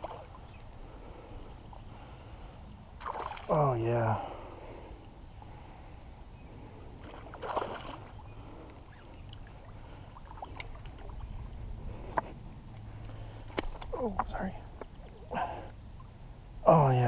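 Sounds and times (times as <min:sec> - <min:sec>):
low steady rumble: 0:00.0 - 0:17.0
fish splashing in water: 0:03.0 - 0:03.6, 0:07.0 - 0:08.2.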